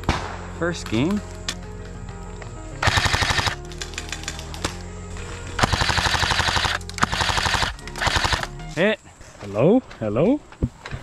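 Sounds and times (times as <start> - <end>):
airsoft rifles firing bursts: 2.8 - 4.8, 5.6 - 8.6.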